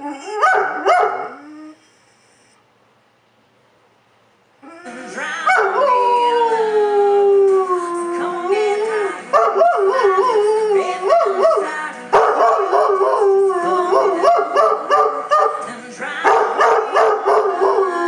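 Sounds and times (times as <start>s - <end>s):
dog howling: 5.5s - 15.5s, 16.3s - 18.0s.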